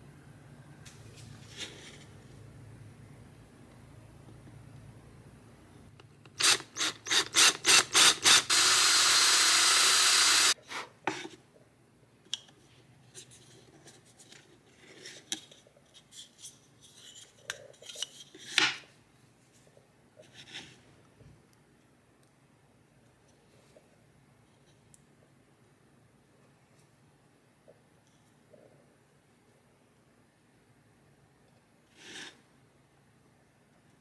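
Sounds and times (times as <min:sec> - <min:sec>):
cordless drill boring into wood: 0:06.4 - 0:10.6.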